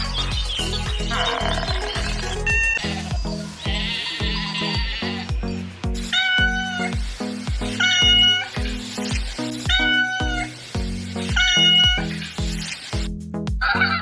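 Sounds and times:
background music with steady beat: 0.0 - 14.0
cat meowing: 3.6 - 5.3, 6.1 - 6.9, 9.7 - 10.6, 11.4 - 12.1.

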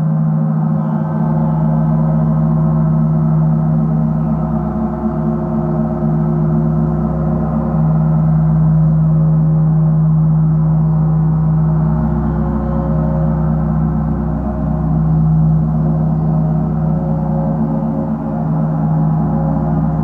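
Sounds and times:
gong roll: 0.0 - 20.0.

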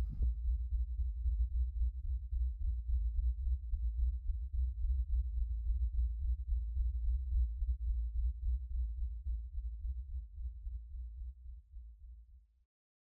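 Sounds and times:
deep low rumbling drone: 0.0 - 0.3.

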